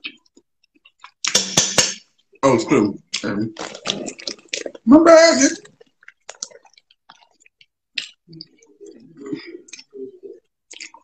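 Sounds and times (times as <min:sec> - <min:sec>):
muffled chewing: 0:00.0 - 0:01.4, 0:03.0 - 0:04.9, 0:05.6 - 0:11.0
mouth clicks and smacks: 0:00.0 - 0:02.4, 0:03.0 - 0:04.9, 0:05.6 - 0:11.0.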